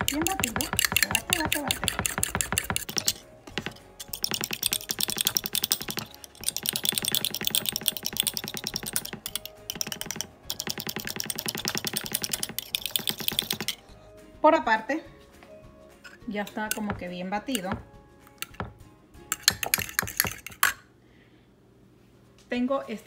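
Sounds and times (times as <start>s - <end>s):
fork whisking eggs in bowl: 0.0s - 13.9s, 19.3s - 20.8s.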